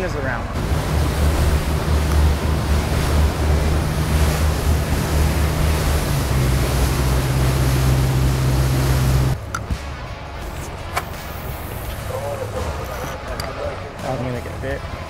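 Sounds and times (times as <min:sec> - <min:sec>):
boat engine droning: 0:00.0 - 0:15.0
wind rushing on microphone: 0:00.6 - 0:09.4
water washing: 0:00.6 - 0:09.7.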